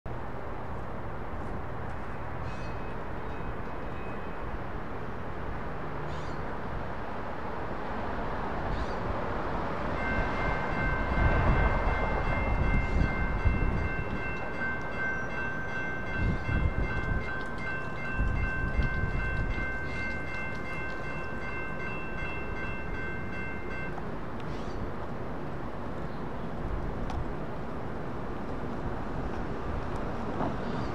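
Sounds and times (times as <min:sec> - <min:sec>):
passing road traffic: 0:00.1 - 0:30.9
railroad crossing bells ringing: 0:09.9 - 0:24.3.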